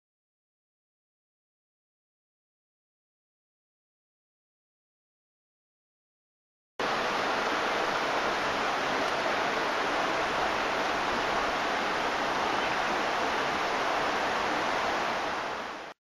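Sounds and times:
stream running over stones: 6.8 - 16.0.

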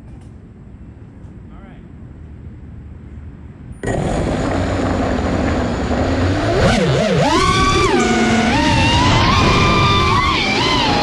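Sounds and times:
drone motors whining: 3.8 - 11.0.

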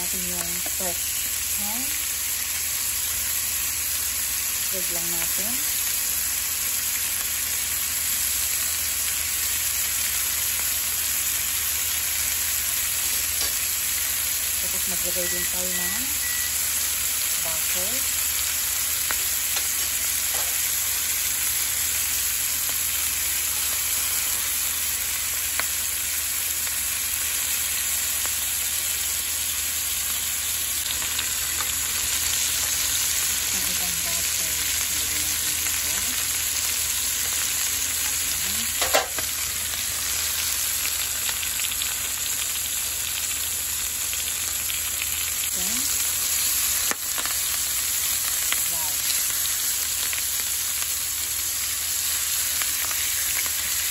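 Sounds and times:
chicken sizzling in a pan: 0.0 - 53.9.

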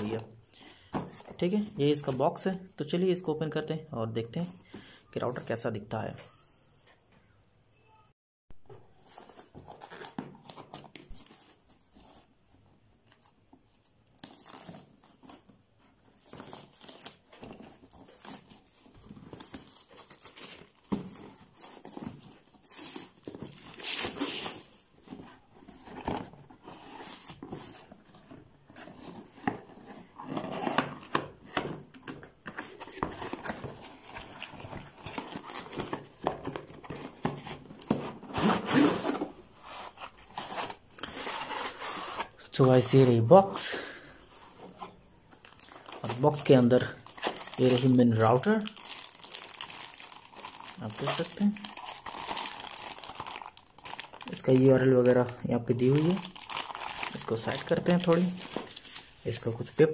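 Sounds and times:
cardboard scraping: 32.4 - 42.4
plastic wrap tearing and crinkling: 45.4 - 59.2.

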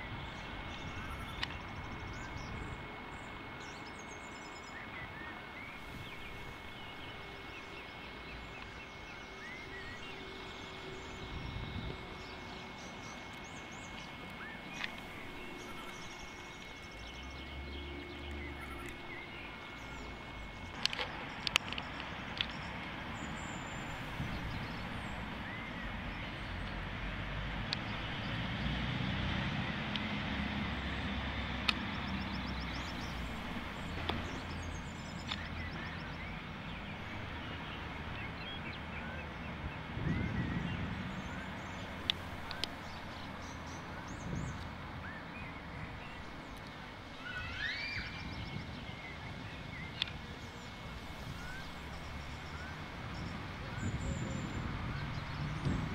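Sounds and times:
small birds chirping: 0.0 - 26.9, 29.6 - 55.9
steady background hiss: 0.0 - 40.0, 40.8 - 55.6
sharp clicks: 20.6 - 22.9
faint bird chirps: 47.0 - 55.3.

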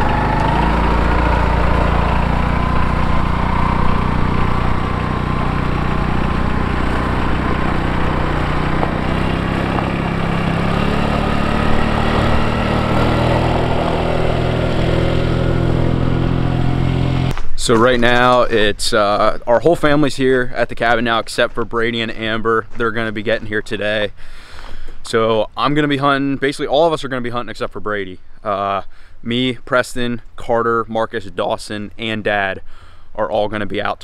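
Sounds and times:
utility vehicle engine running: 0.0 - 19.3.

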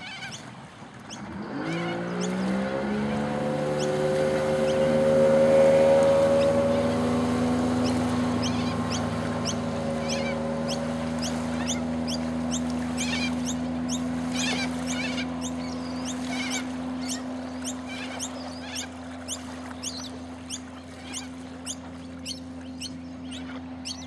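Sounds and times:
boat engine drone: 0.0 - 24.0
bird chirping: 7.8 - 24.0.

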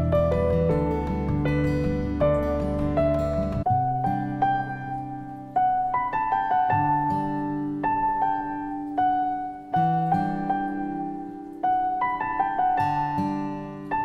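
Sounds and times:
slow gentle piano music: 0.0 - 14.0.

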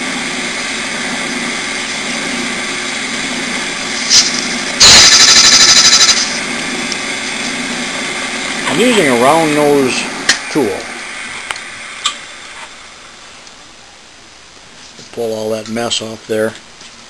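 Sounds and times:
lathe running: 0.0 - 13.2.

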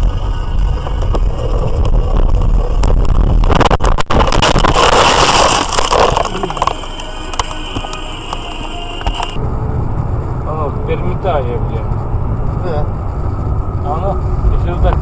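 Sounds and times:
road rumble: 0.0 - 15.0
snow scraping against car body: 4.4 - 7.0.

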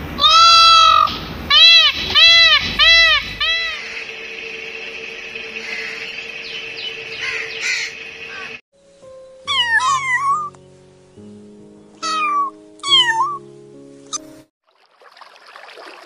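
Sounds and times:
kitten meowing: 0.2 - 3.8, 9.5 - 10.6, 12.0 - 13.4
crows cawing: 0.9 - 4.1, 5.6 - 6.1, 7.1 - 8.6
soft background music: 4.1 - 14.5.

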